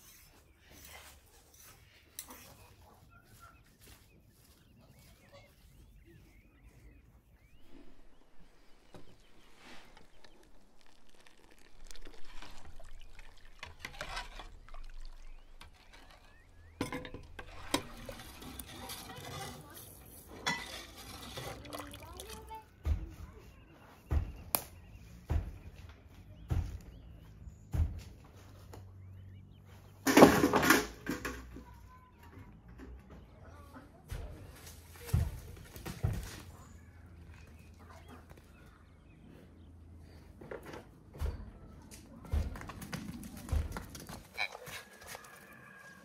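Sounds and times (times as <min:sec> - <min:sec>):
broth splashing into a pot: 0:08.3 - 0:19.3, 0:20.5 - 0:22.5
wooden trough falling with clatter: 0:30.0 - 0:31.5.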